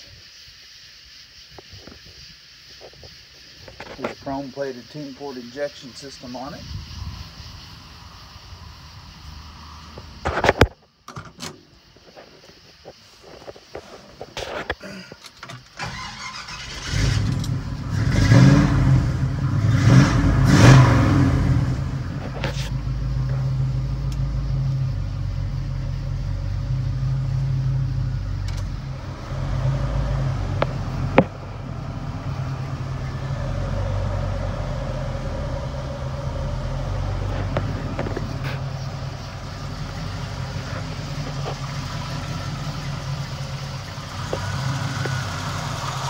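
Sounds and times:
car engine starting and idling: 14.8s - 46.0s.

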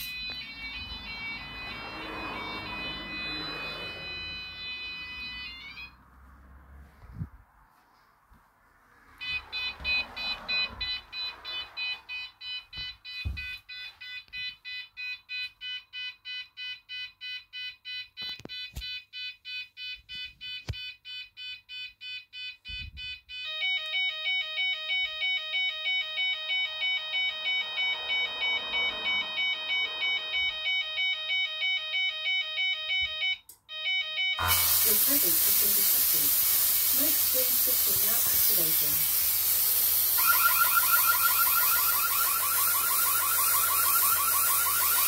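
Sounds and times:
electronic alarm beeping: 0.0s - 6.1s, 9.2s - 45.0s.

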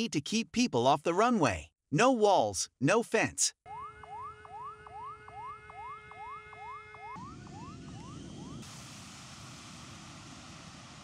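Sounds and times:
warning siren rising sweeps: 3.7s - 11.0s
jet airliner landing: 7.2s - 11.0s.

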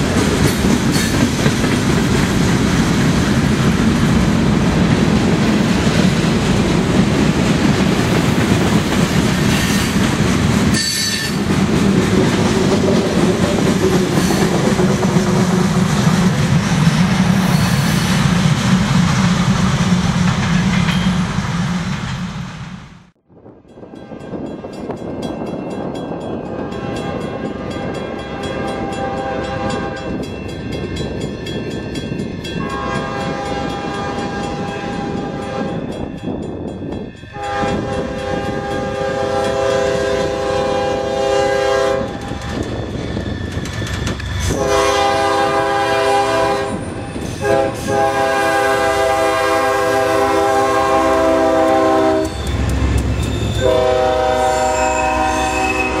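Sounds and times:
locomotive engine and wheels rumbling: 0.0s - 56.0s
locomotive air horn blasts: 26.7s - 30.2s, 32.6s - 35.8s, 37.3s - 42.2s, 44.4s - 46.8s, 47.4s - 52.7s, 53.5s - 56.0s.

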